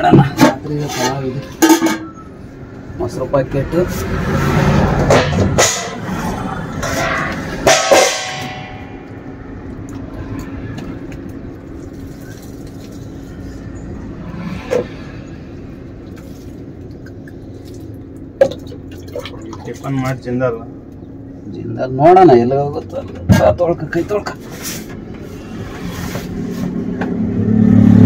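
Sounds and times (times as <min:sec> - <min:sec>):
clattering food containers: 0:00.0 - 0:02.2.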